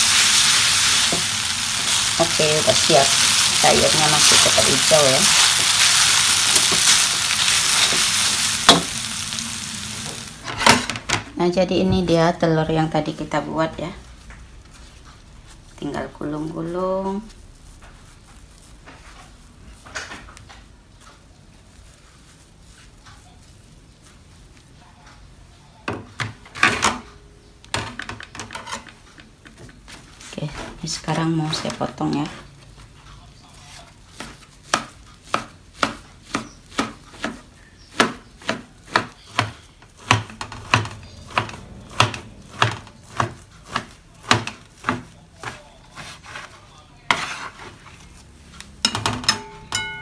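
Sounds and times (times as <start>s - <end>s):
soft rustles and light scrapes: 13.3s - 25.4s, 28.6s - 35.3s, 41.6s - 48.8s.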